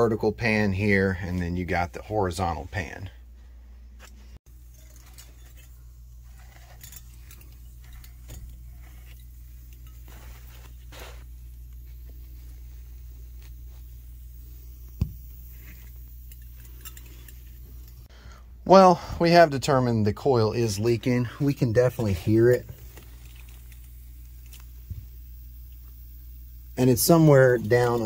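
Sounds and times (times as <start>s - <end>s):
steady low hum: 0.0s - 28.0s
metallic clinks and rustles: 4.0s - 14.6s, 15.3s - 18.1s, 22.0s - 24.7s
refrigerant hissing: 4.6s - 19.5s, 20.6s - 28.0s.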